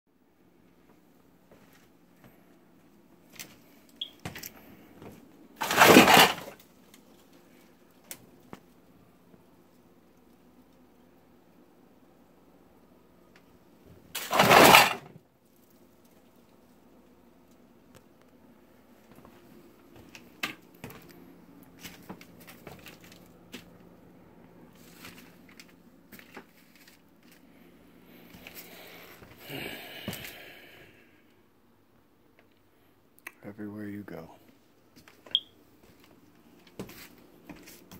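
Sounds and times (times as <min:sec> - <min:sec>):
rubbish clicks and knocks: 0:05.6 - 0:06.6, 0:14.2 - 0:15.1
rubbish rustling and crunching: 0:05.6 - 0:07.4, 0:14.1 - 0:15.6, 0:24.8 - 0:27.4
paper and plastic crinkling underfoot: 0:21.7 - 0:23.9, 0:24.7 - 0:27.6, 0:35.9 - 0:37.9.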